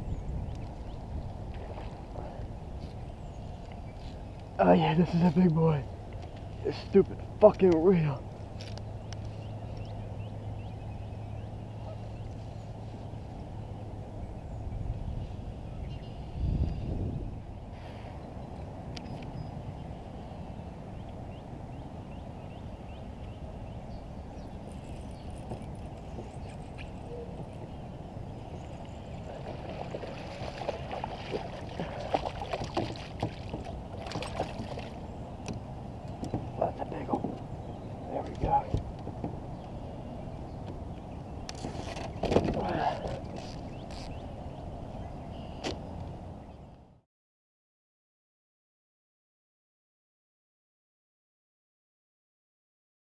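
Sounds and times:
fish splashing: 0:29.3 - 0:35.0
knocks against hull: 0:29.5 - 0:35.6, 0:36.2 - 0:37.4.

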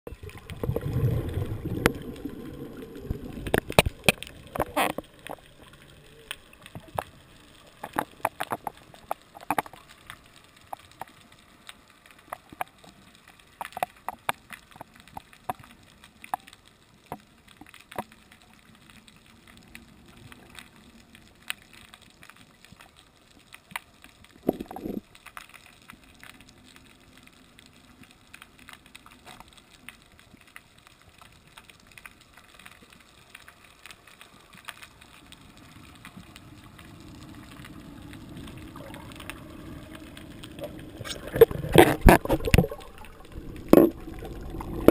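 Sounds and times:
sharp underwater clicks and knocks: 0:03.0 - 0:07.1, 0:07.7 - 0:11.3, 0:12.2 - 0:18.2, 0:40.4 - 0:44.9.

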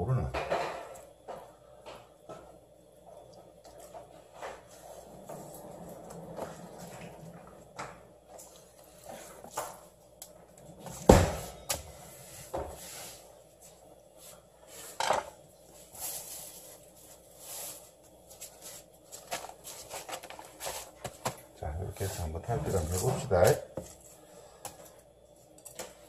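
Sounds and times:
kitchen knocks and clatter: 0:00.2 - 0:02.5, 0:15.0 - 0:15.4.

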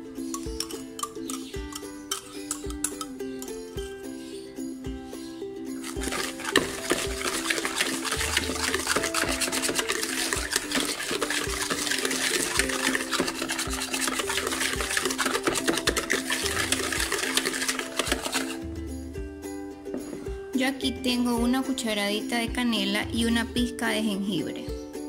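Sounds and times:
background music: 0:00.0 - 0:25.0
whisk scraping and clicking bowl: 0:00.3 - 0:03.6, 0:05.8 - 0:18.6.

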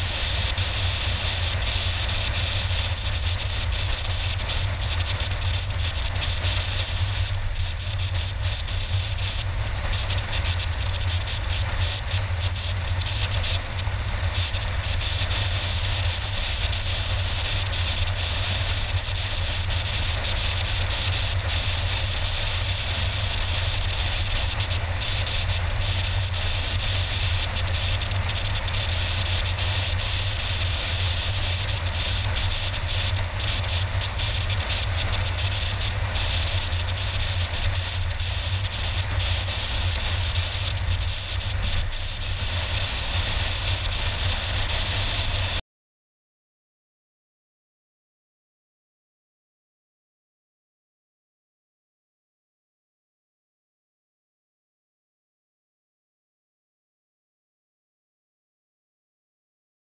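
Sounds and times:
car road and engine noise: 0:00.0 - 0:45.6.

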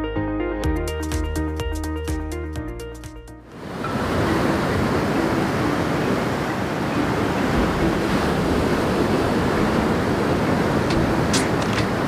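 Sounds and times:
surf breaking on a sandy beach: 0:03.5 - 0:12.0.

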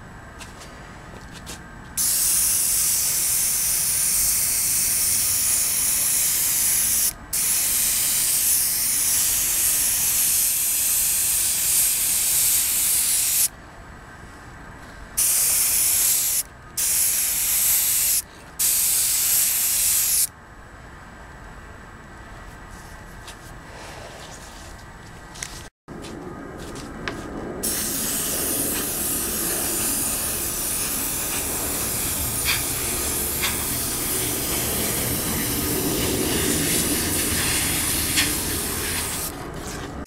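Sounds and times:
airbrush spraying hiss: 0:02.0 - 0:13.5, 0:15.2 - 0:20.3, 0:27.6 - 0:39.3.

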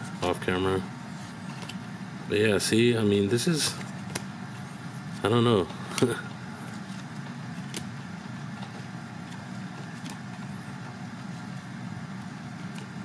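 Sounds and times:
low background hum: 0:00.0 - 0:13.0
cards flipped by hand: 0:05.9 - 0:07.9.

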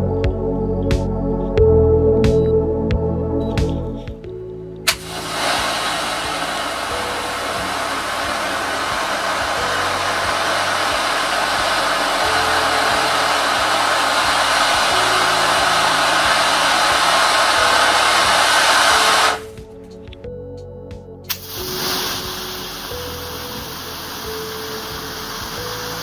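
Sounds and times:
fireworks fountain hissing: 0:04.9 - 0:19.5, 0:21.3 - 0:26.0.

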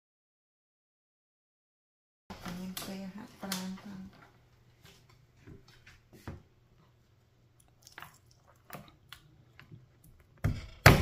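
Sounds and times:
loud knife chop on board: 0:10.5 - 0:11.0.

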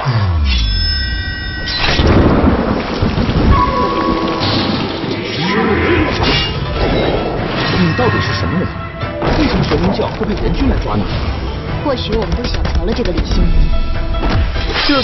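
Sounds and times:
heavy rain: 0:01.8 - 0:07.6
thunder rumbling: 0:01.8 - 0:07.6.

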